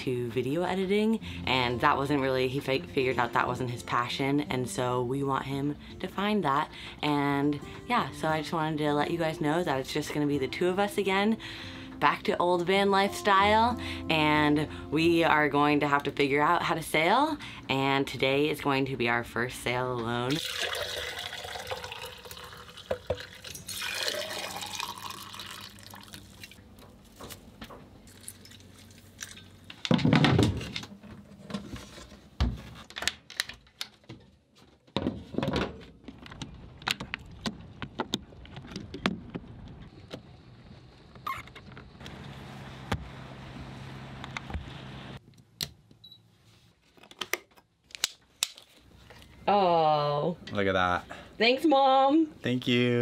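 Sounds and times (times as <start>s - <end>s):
tea pouring into tumbler: 20.4s - 26.6s.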